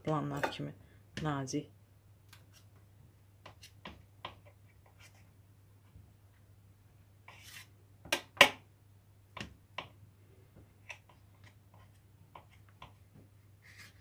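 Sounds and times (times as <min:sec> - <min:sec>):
knife scrape: 0:07.3 - 0:07.7.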